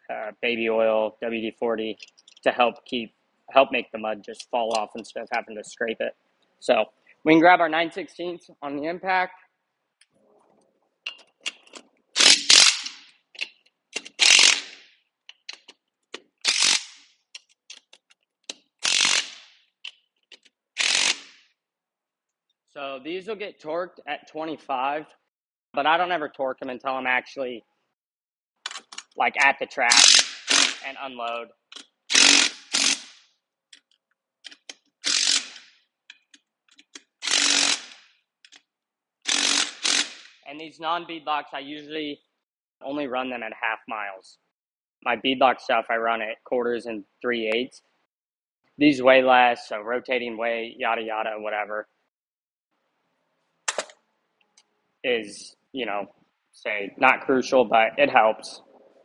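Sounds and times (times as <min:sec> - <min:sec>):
small metallic clicks: 0:02.0 - 0:02.5, 0:33.7 - 0:37.2, 0:38.4 - 0:38.6
impact wrench running: 0:12.2 - 0:13.0, 0:14.2 - 0:14.8, 0:16.5 - 0:17.0, 0:18.8 - 0:19.4, 0:20.8 - 0:21.3, 0:30.0 - 0:30.8, 0:32.1 - 0:33.1, 0:35.0 - 0:35.6, 0:37.2 - 0:38.0, 0:39.3 - 0:40.3.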